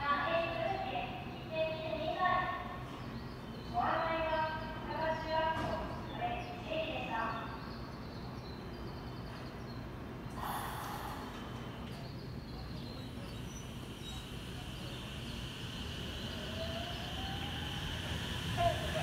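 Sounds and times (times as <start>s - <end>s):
electric train humming: 7.9s - 19.0s.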